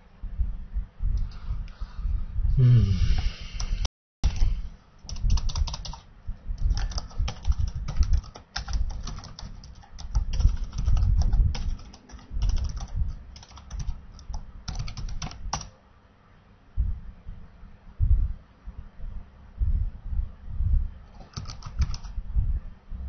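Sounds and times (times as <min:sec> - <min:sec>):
typing on a keyboard: 0:04.3 - 0:15.7, 0:21.1 - 0:22.2.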